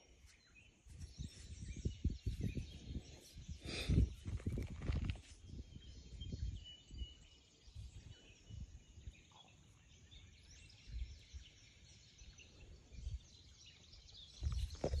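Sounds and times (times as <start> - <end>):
faint bird chirps: 0.0 - 15.0
wind buffeting microphone: 1.0 - 9.3, 12.6 - 15.0.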